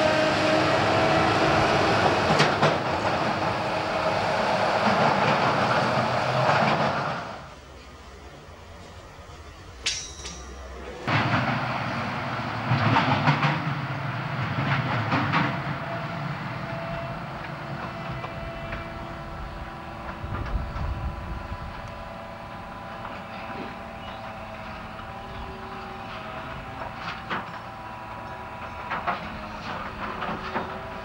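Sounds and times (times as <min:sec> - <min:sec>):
train rumbling past: 0:00.0 - 0:31.0
wheels knocking on rails: 0:00.8 - 0:07.4, 0:09.8 - 0:31.0
steady tones: 0:07.4 - 0:11.1.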